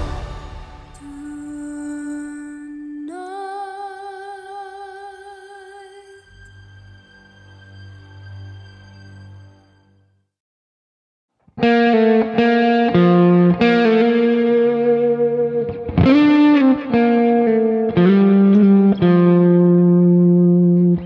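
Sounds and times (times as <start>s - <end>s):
distorted electric guitar music: 11.6s - 21.0s.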